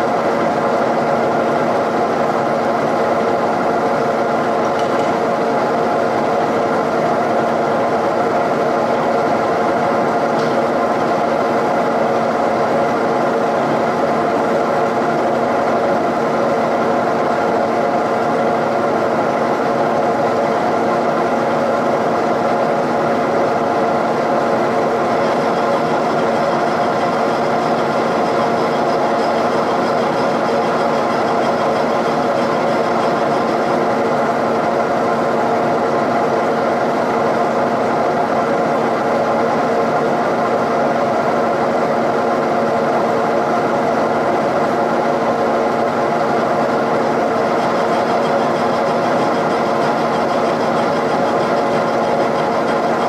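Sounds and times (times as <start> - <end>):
milling machine cutting metal: 23.5 - 33.9, 45.8 - 53.0.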